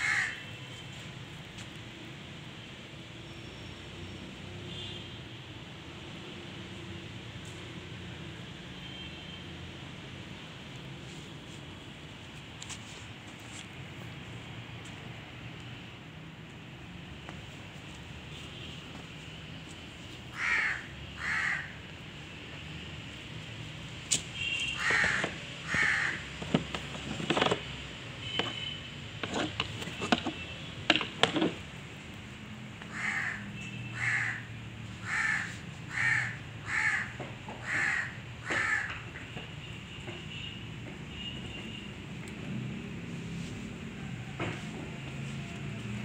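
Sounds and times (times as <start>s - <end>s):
crow cawing: 0.0s - 0.4s, 20.3s - 21.8s, 24.8s - 26.3s, 32.9s - 39.0s
sharp clicks and knocks: 26.4s - 28.6s, 29.2s - 31.7s.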